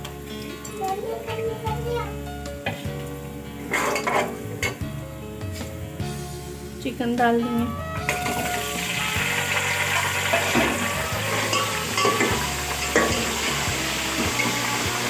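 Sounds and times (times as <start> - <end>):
chicken sizzling in hot oil: 0.0 - 6.8, 7.7 - 15.0
metal spoon scraping a pot: 3.6 - 4.8, 9.9 - 14.6.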